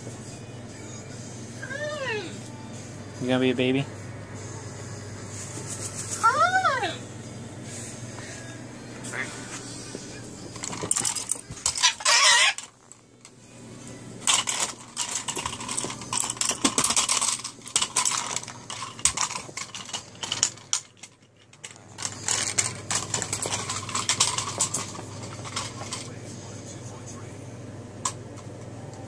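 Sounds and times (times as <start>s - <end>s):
plastic toy clattering on floor: 10.5s - 12.8s, 14.3s - 26.2s.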